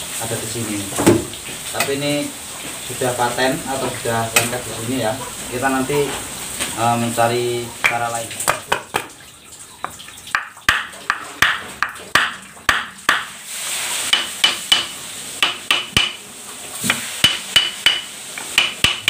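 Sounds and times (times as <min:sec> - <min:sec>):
hammer striking metal: 0:10.4 - 0:13.3, 0:14.1 - 0:16.2, 0:16.9 - 0:19.0.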